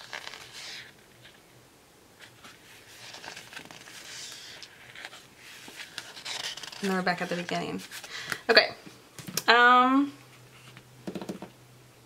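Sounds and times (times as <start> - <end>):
paper pages rustling: 0.0 - 1.4, 2.2 - 8.4.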